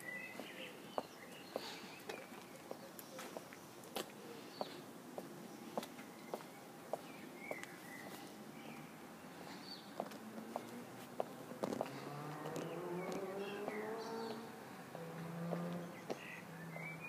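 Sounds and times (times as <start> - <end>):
bird chirps: 0.0 - 3.7, 5.5 - 10.0, 15.6 - 17.0
footsteps on pavement: 0.0 - 8.3, 9.6 - 16.3.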